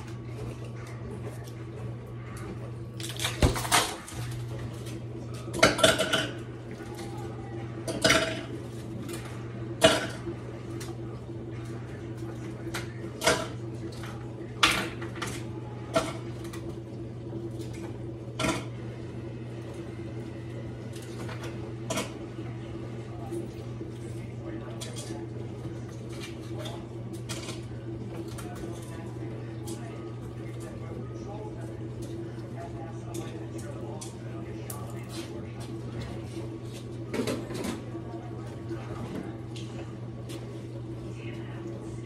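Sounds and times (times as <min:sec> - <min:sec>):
dishes and cutlery clattering: 0:05.5 - 0:06.4, 0:07.9 - 0:08.5.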